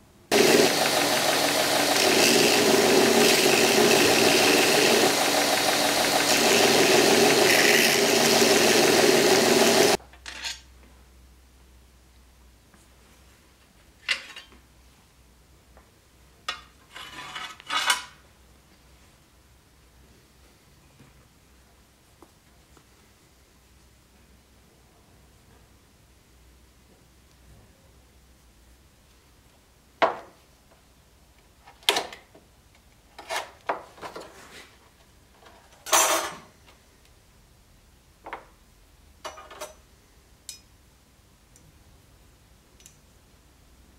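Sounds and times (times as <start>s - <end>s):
scrape on workbench: 16.9s - 18.2s, 33.2s - 34.8s, 35.5s - 36.5s
tools clattering on workbench: 35.7s - 36.5s, 39.2s - 39.8s.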